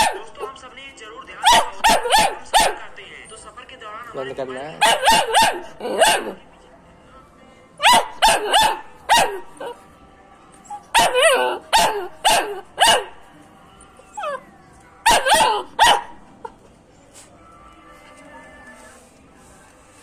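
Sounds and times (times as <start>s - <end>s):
puppy barking: 0.0s - 0.6s, 1.4s - 3.0s, 4.7s - 6.4s, 7.8s - 9.8s, 10.6s - 13.2s, 14.0s - 16.6s.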